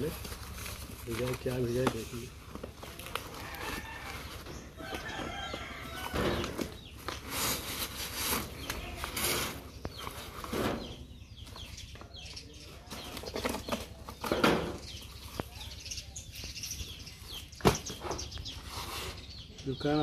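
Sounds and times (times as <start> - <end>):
cardboard tube rustling and scraping: 0.0 - 11.1, 12.9 - 15.4, 17.6 - 19.3
cardboard tearing: 6.4 - 9.7.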